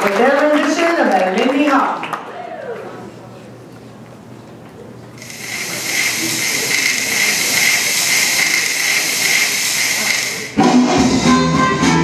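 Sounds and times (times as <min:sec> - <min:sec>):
steady high hiss: 0:05.2 - 0:10.7
loud swing music: 0:10.6 - 0:12.0.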